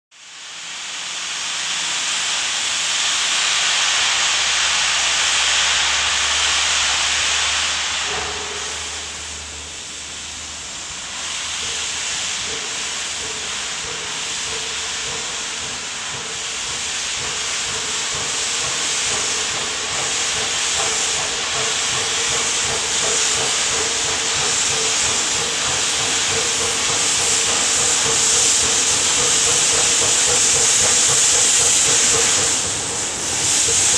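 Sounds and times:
steam locomotive hissing steam: 0.2 - 33.9.

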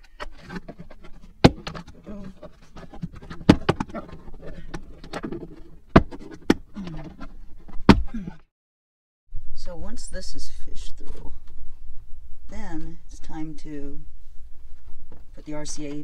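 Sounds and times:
rustling: 0.0 - 7.9.

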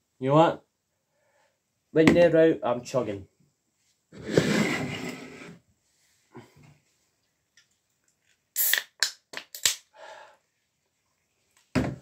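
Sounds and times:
cans knocking on hard floor: 11.7 - 12.0.

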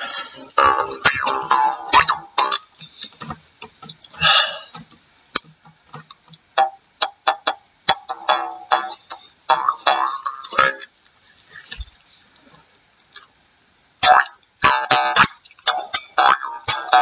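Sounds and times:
jaw harp twangs: 0.0 - 2.7.

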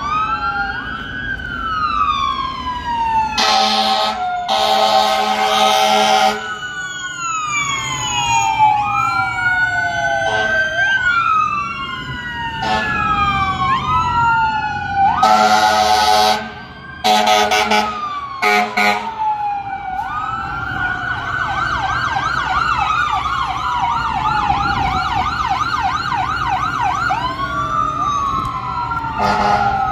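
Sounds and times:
fire engine siren wailing: 0.0 - 29.9
horn blasts: 17.1 - 19.1, 29.2 - 29.7.

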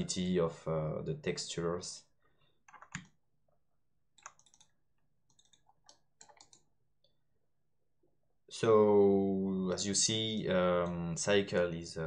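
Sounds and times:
mouse and keyboard clicking: 2.7 - 3.1, 4.2 - 4.7, 5.3 - 6.7.

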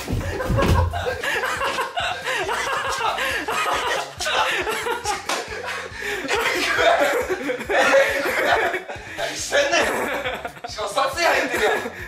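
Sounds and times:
people laughing: 0.0 - 12.0.

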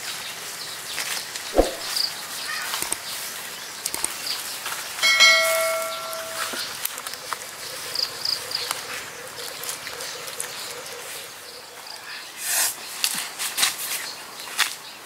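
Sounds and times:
dry leaves rustling underfoot: 12.8 - 14.9.

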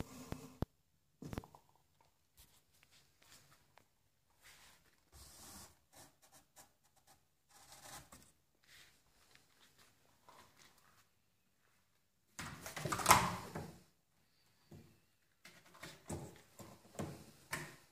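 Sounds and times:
faint rustles and brushing: 2.4 - 6.2, 7.6 - 11.9.

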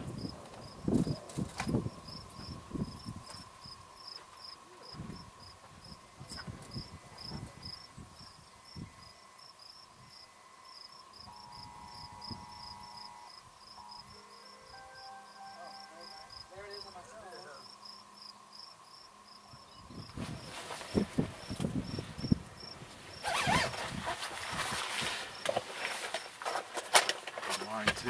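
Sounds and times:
wind rumbling on microphone: 0.0 - 3.9, 4.9 - 9.1, 19.5 - 25.4
insect chirping: 0.0 - 23.6, 24.4 - 26.4.

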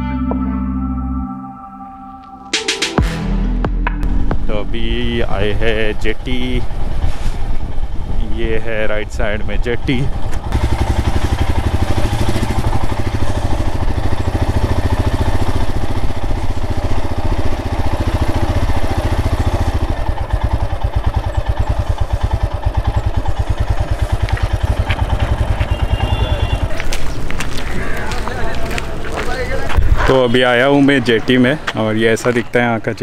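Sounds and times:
single-cylinder motorcycle engine thumping: 10.1 - 27.7.

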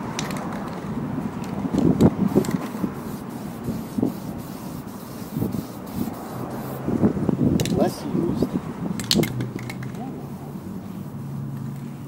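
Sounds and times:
spray paint can hissing: 1.8 - 6.9.

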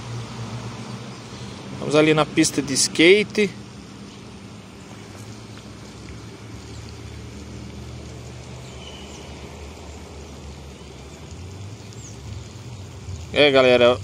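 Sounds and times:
outdoor background noise: 0.0 - 14.0.

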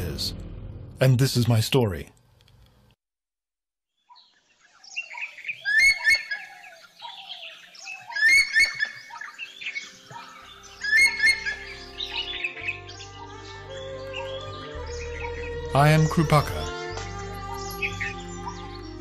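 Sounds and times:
birds chirping: 3.9 - 19.0.

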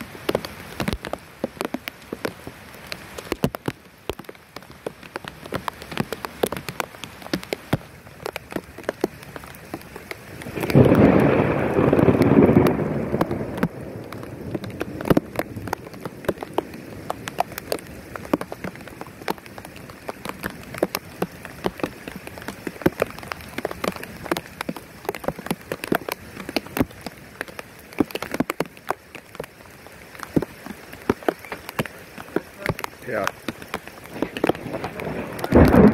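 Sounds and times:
rain falling: 0.0 - 35.9
thunder: 10.5 - 15.7, 34.1 - 35.9.

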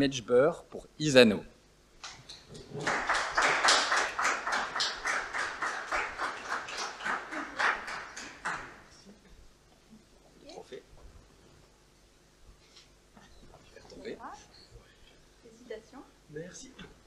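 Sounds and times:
audience applauding: 2.5 - 9.0.

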